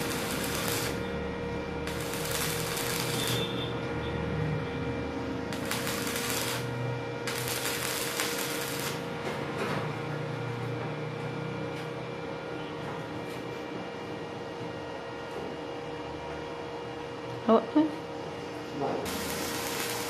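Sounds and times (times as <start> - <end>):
welding arc crackling: 0.0 - 1.2, 1.8 - 3.8, 5.5 - 9.1, 19.1 - 20.0
steady hum: 0.0 - 12.8, 13.6 - 20.0.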